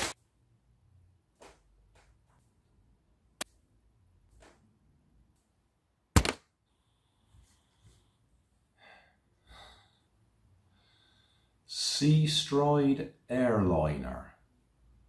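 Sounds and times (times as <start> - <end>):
person breathing: 6.6 - 11.7.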